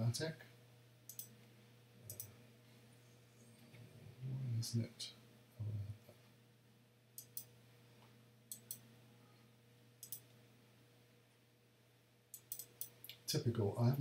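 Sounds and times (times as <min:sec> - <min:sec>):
faint low hum: 0:00.0 - 0:14.0
computer mouse double-clicking: 0:10.0 - 0:10.2, 0:12.3 - 0:13.0.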